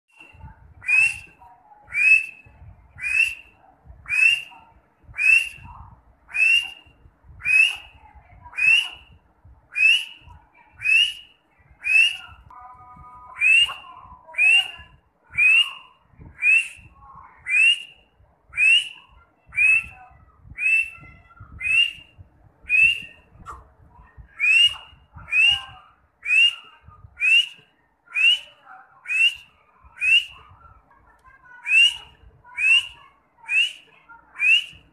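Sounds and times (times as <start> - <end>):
francolin whistled calls: 3.0 - 3.5, 4.1 - 4.5, 5.2 - 5.7, 6.3 - 7.9, 10.8 - 12.2, 13.4 - 13.8, 18.6 - 20.0, 20.6 - 21.0, 21.6 - 22.1, 24.4 - 27.6, 28.2 - 30.4, 34.4 - 34.8.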